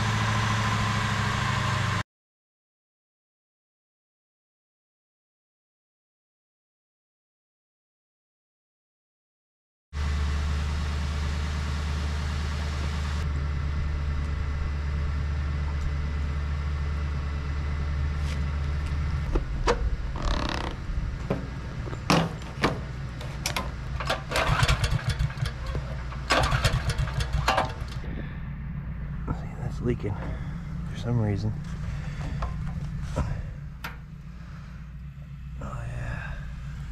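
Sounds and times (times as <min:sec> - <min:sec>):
generator engine running: 0:00.0 - 0:02.0, 0:10.0 - 0:36.9
sharp clicks and knocks: 0:19.3 - 0:28.0, 0:32.3 - 0:34.0.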